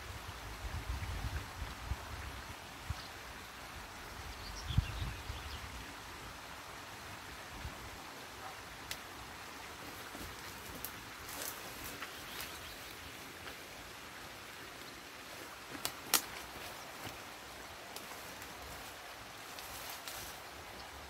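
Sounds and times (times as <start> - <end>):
steady background hiss: 0.0 - 21.0
sticks cracking and snapping: 15.7 - 17.2.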